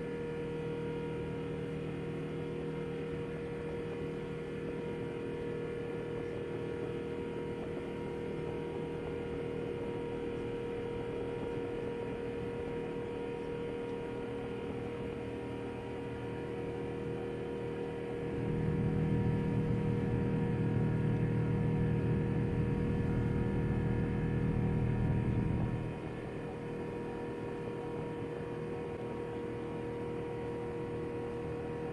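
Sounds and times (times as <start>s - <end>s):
airplane cabin drone: 0.0s - 31.9s
deep rumble: 18.4s - 26.0s.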